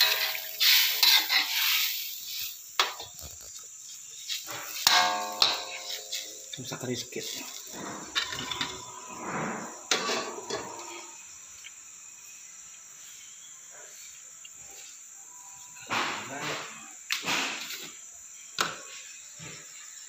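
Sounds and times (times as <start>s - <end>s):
high-pitched whine: 4.5s - 13.9s.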